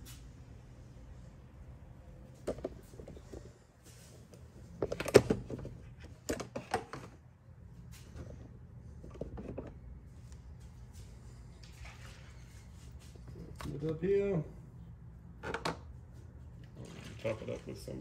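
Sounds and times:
knocks and clatters of handling: 0:04.7 - 0:07.2.

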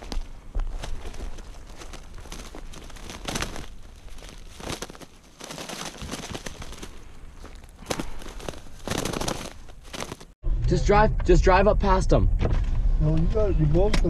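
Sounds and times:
footsteps crunching dry leaves: 0:00.0 - 0:10.4
rustling brittle brush: 0:00.0 - 0:10.4.

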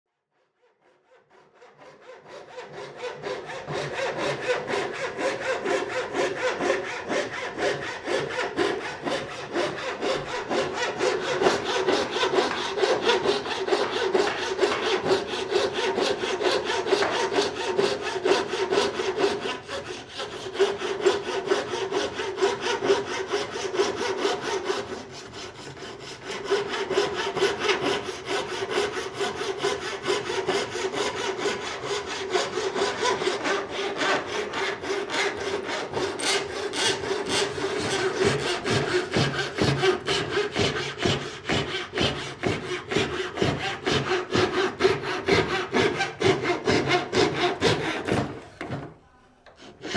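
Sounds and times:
treadle saw rasping through wood: 0:00.8 - 0:48.9, 0:49.5 - 0:49.9.

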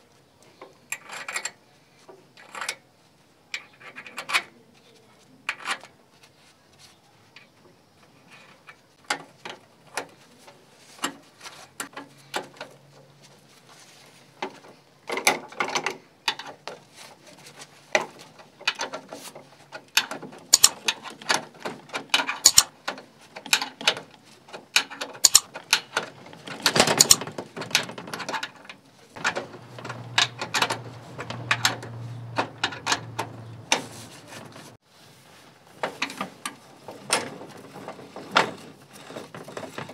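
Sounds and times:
metal parts clicking and rattling: 0:19.8 - 0:33.8.

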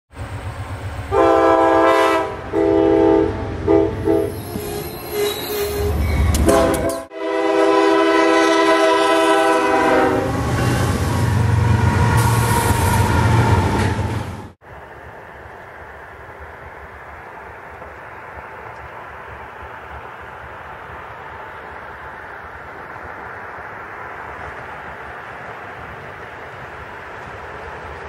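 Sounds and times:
rail noise: 0:00.1 - 0:28.0
locomotive air horn blasts: 0:01.1 - 0:13.1.

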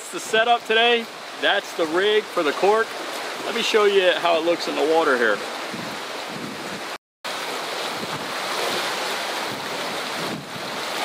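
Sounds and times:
choppy water washing: 0:00.0 - 0:11.0
wind on microphone: 0:05.4 - 0:07.0, 0:07.8 - 0:11.0.

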